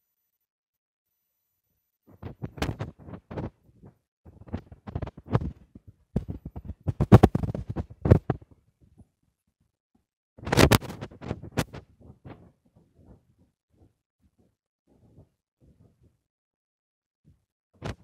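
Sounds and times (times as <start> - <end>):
phone microphone handling noise: 2.1 - 8.6, 10.4 - 16.0.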